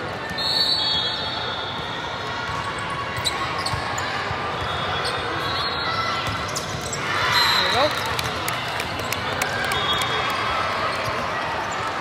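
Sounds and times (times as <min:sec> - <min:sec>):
echoing murmur of voices: 0:01.1 - 0:12.0
sneakers squeaking on court: 0:02.6 - 0:07.9.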